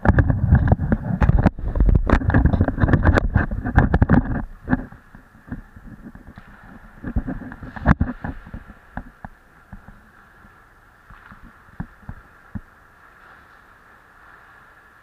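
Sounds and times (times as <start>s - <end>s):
dull knocks and thumps: 0.0s - 10.0s
wind buffeting microphone: 0.0s - 15.0s.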